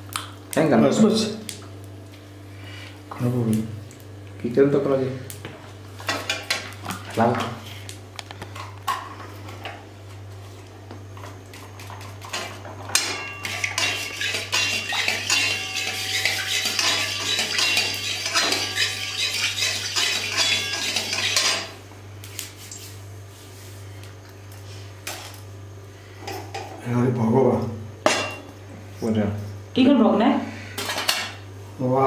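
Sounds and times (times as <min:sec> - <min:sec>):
low steady hum: 0:00.0 - 0:32.0
metal spatula scraping pan: 0:13.2 - 0:21.7.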